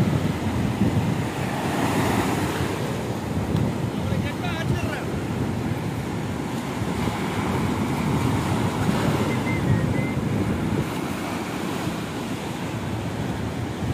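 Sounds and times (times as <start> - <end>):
surf washing up beach: 0.0 - 13.9
wind rumbling on microphone: 0.0 - 13.9.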